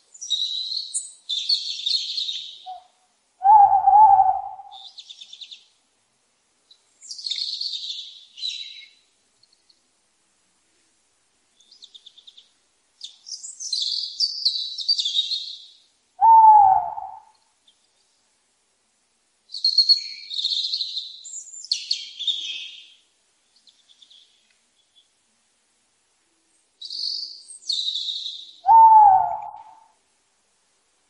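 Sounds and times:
small birds chirping: 0.0 - 5.8, 6.6 - 9.9, 11.5 - 18.4, 19.5 - 25.2, 26.5 - 29.9
louder lower bird call: 2.3 - 5.0, 16.2 - 17.3, 27.8 - 30.0.

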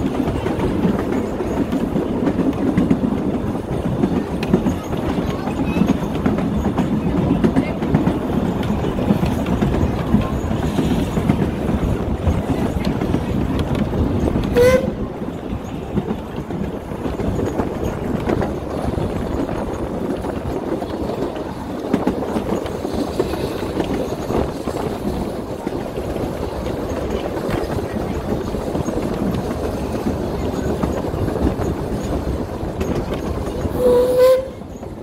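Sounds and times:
train carriage rumbling over rails: 0.0 - 35.0
steam locomotive whistle toot: 14.5 - 15.0, 33.7 - 34.7.

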